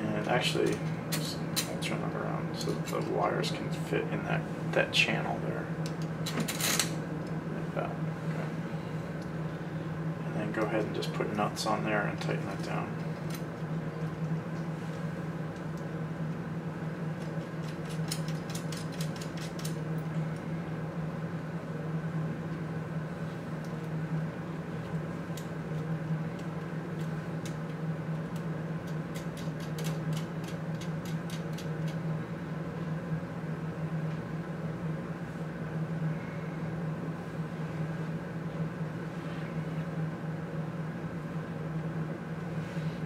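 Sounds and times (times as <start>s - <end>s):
machine hum: 0.0s - 43.0s
clicks of nuts and screws: 17.2s - 19.8s.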